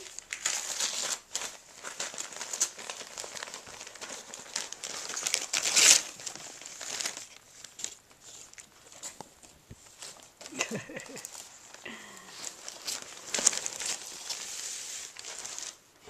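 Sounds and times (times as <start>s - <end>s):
wrapping paper tearing and crinkling: 0.0s - 15.9s.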